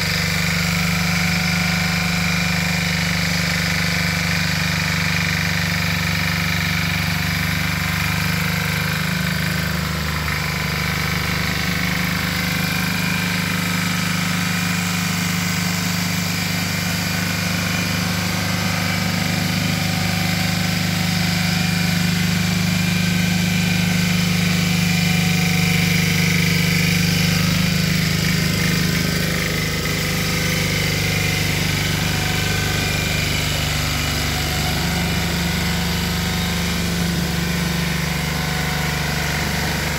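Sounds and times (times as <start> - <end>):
tiller engine running: 0.0 - 39.9.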